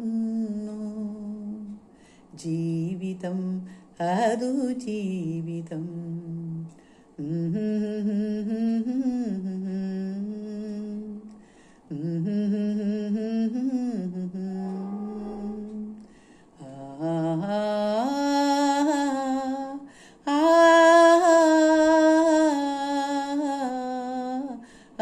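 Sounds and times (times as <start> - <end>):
woman singing wordlessly: 0.0 - 25.0.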